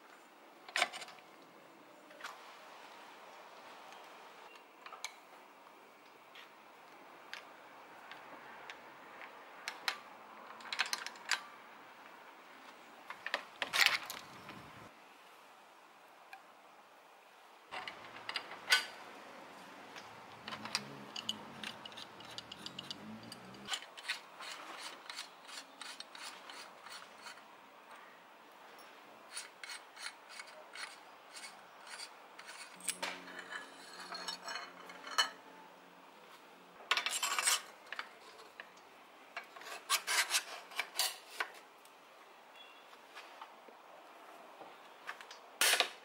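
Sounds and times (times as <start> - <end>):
metal clicks and scraping: 17.7 - 19.1, 19.9 - 27.4, 29.3 - 35.4, 36.9 - 38.8.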